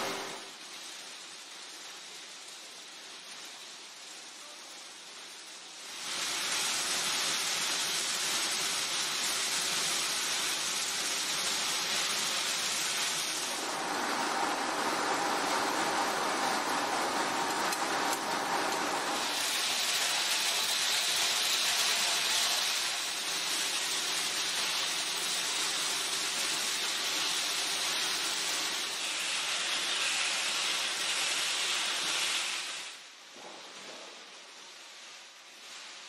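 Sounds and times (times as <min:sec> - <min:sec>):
kibble pouring through machinery: 0:00.0 - 0:33.1.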